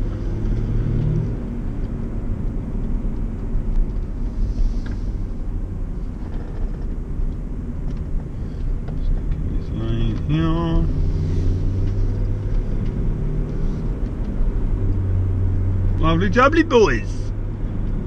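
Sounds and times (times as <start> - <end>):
engine and road noise in car: 0.0 - 18.0.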